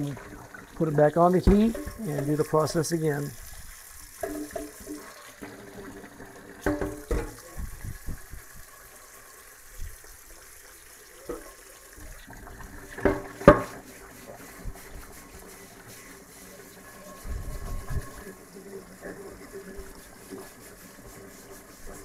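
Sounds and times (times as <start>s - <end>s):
pan clunking against sink: 1.4s - 2.3s, 4.2s - 5.1s, 6.6s - 7.4s, 13.0s - 13.8s
tap running into a metal sink: 1.4s - 2.7s, 4.2s - 5.6s, 6.6s - 8.2s, 11.2s - 13.8s
skillet being scrubbed: 13.0s - 18.4s, 19.0s - 22.0s.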